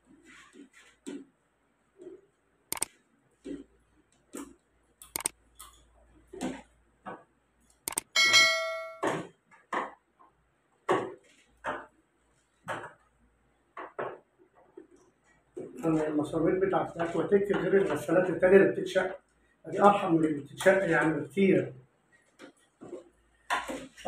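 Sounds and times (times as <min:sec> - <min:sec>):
loud metallic clang: 0:08.2 - 0:09.2.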